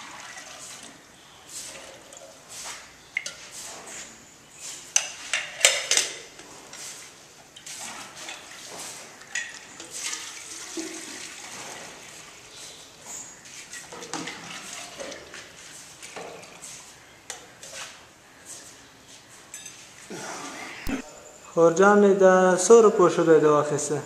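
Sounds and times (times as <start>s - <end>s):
milk pouring and splashing: 0.0s - 3.9s, 7.6s - 16.9s
metal vessels clinking: 0.0s - 18.0s, 19.5s - 20.1s.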